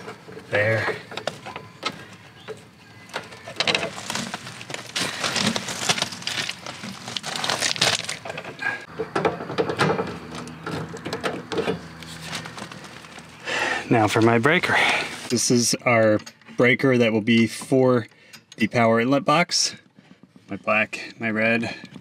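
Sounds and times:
handling noise in breaker panel: 0:00.0 - 0:13.3
stiff wire being bent: 0:03.2 - 0:08.4.

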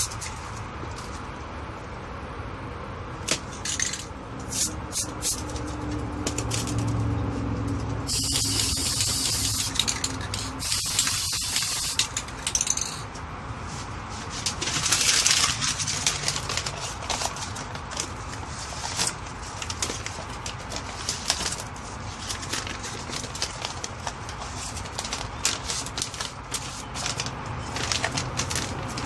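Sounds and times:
spray paint can hissing: 0:04.5 - 0:05.5, 0:08.1 - 0:12.9.

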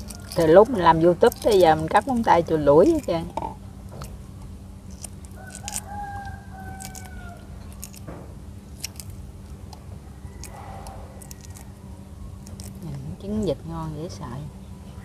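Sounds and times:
rooster crowing: 0:00.0 - 0:00.8, 0:05.3 - 0:08.0, 0:10.0 - 0:12.3
eggshell cracking and peeling: 0:00.0 - 0:13.1.

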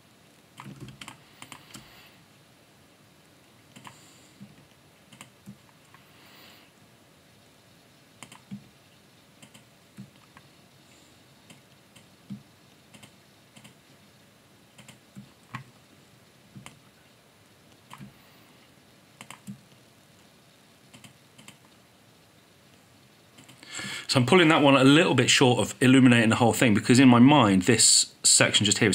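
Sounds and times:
keyboard keys clicking: 0:00.6 - 0:01.8, 0:08.2 - 0:08.6, 0:14.8 - 0:15.7.

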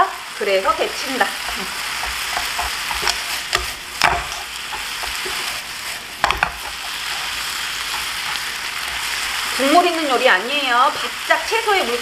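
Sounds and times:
noodles sizzling in a frying pan: 0:00.0 - 0:12.0
chopsticks clicking against pan: 0:01.4 - 0:05.4, 0:06.2 - 0:07.1.

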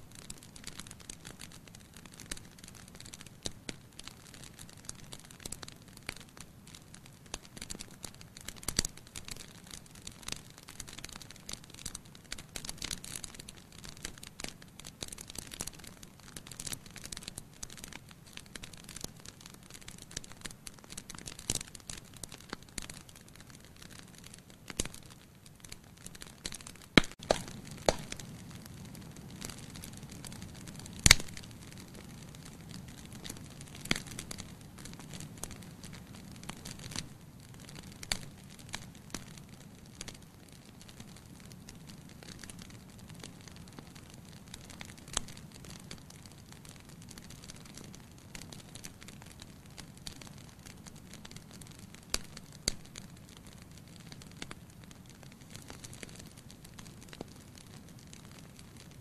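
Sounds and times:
logs crackling in fire: 0:00.0 - 0:59.0
loud pops from fire: 0:00.0 - 0:59.0.

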